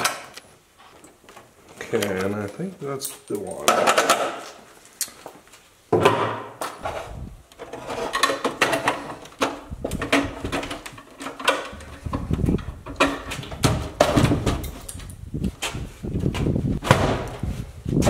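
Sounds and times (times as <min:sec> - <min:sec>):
metal box knocking and clanking: 0:08.1 - 0:14.8.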